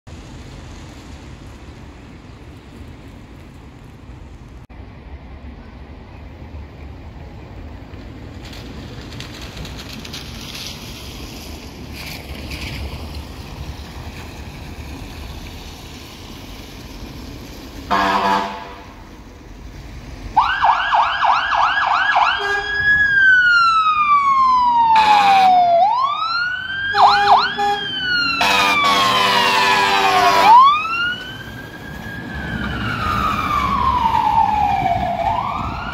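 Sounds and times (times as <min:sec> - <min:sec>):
fire engine rumble: 0:00.1 - 0:35.9
air horn blasts: 0:17.9 - 0:19.0, 0:22.3 - 0:22.8, 0:26.9 - 0:30.6
siren yelping and wailing: 0:20.4 - 0:35.9.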